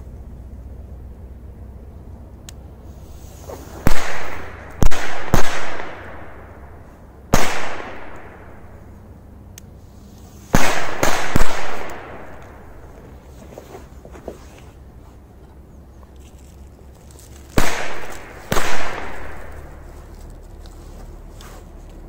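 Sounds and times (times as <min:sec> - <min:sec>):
firecrackers banging: 0:03.3 - 0:08.9, 0:10.5 - 0:13.1, 0:17.4 - 0:20.1.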